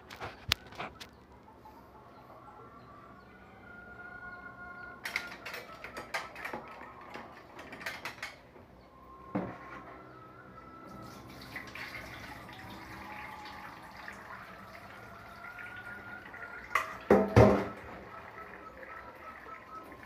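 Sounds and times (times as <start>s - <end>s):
metal utensils clattering: 5.0s - 8.5s
knock: 17.1s - 17.7s.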